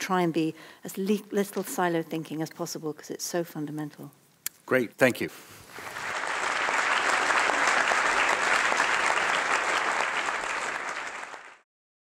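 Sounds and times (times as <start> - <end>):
audience applauding: 5.7 - 11.7.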